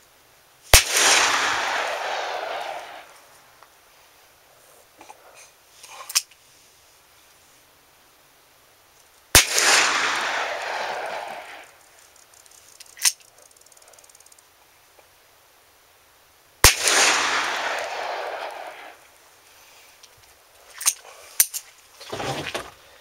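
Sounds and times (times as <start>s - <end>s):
revolver shots echoing: 0.8s - 3.2s, 9.4s - 11.8s, 16.6s - 19.0s.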